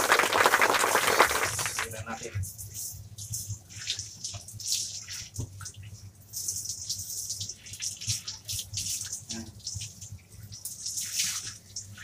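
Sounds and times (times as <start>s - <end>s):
shower water spraying on fur: 6.3s - 12.0s.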